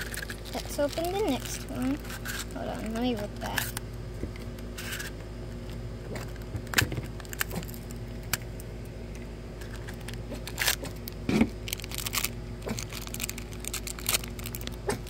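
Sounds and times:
plastic packaging crinkling: 0:00.0 - 0:03.8, 0:09.6 - 0:15.0.

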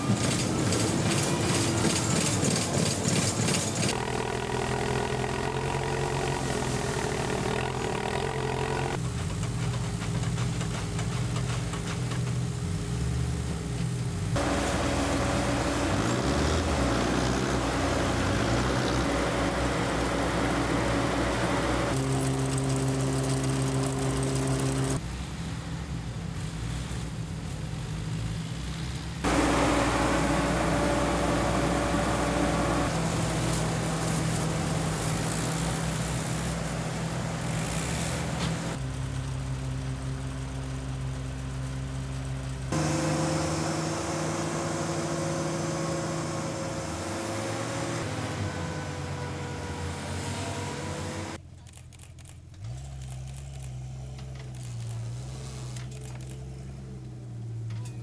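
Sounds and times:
conveyor rattle: 0:00.0 - 0:04.0
harvesting machine engine hum: 0:00.0 - 0:25.0, 0:28.9 - 0:57.9.

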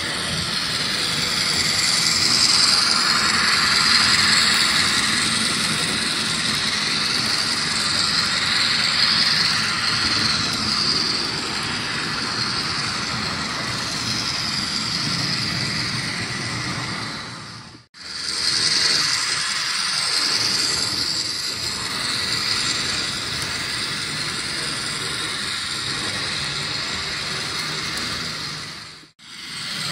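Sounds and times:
high wavering whine: 0:00.0 - 0:29.9
model train motor whirring: 0:00.0 - 0:29.9.

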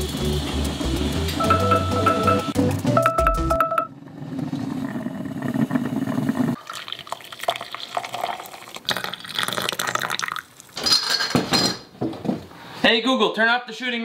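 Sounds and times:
coffee pouring into a mug: 0:04.8 - 0:10.8.

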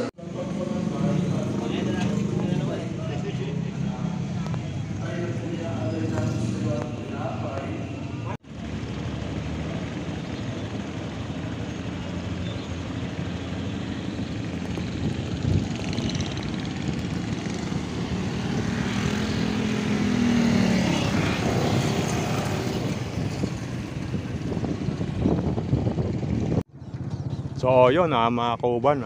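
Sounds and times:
passing motor scooter: 0:00.0 - 0:27.6
motorcycle engine rumble: 0:00.0 - 0:28.9
wind rush: 0:14.4 - 0:26.6.

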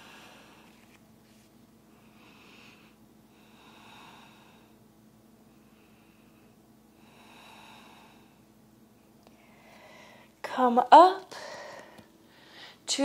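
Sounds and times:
person breathing slowly: 0:00.0 - 0:00.9, 0:01.9 - 0:04.8, 0:05.5 - 0:08.5, 0:09.3 - 0:10.4, 0:11.3 - 0:12.8.

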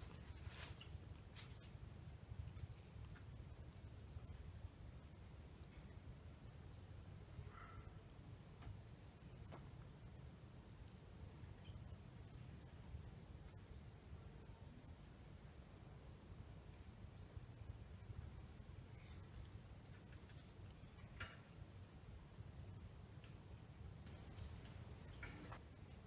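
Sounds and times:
insects chirring: 0:00.0 - 0:26.0
faint ticks: 0:22.8 - 0:26.0.

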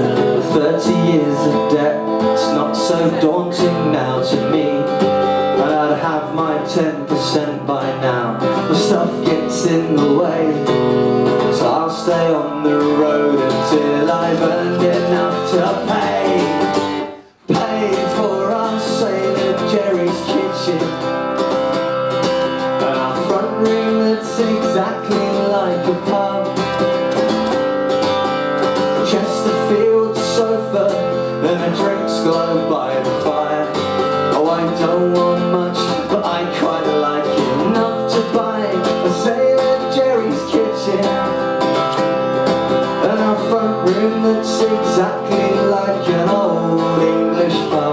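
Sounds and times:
acoustic guitar strumming: 0:00.0 - 0:47.9.

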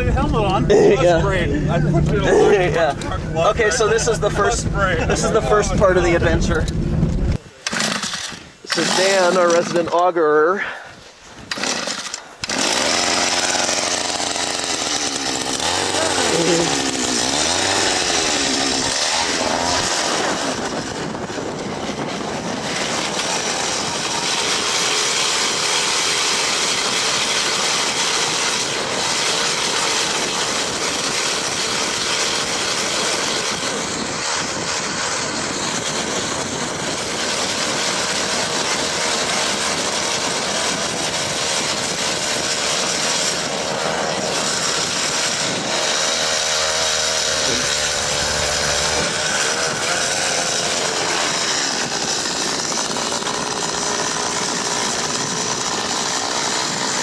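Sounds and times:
ice auger engine running: 0:07.6 - 0:57.0.

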